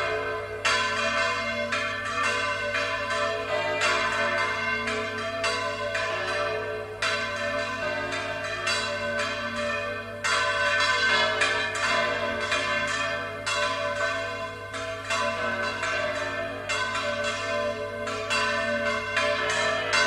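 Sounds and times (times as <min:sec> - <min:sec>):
church bells ringing: 0:00.0 - 0:20.0.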